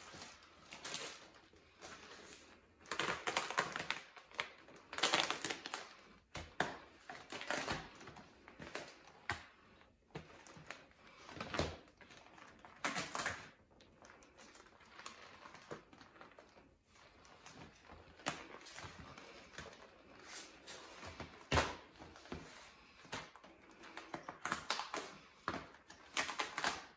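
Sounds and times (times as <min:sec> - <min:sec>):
plastic sheeting crinkling: 0:00.0 - 0:06.0.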